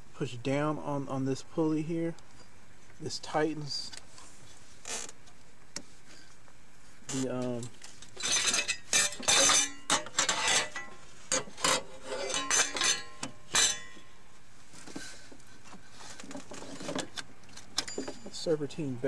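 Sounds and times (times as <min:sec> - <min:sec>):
steel tool clinking on metal: 0:08.2 - 0:14.0.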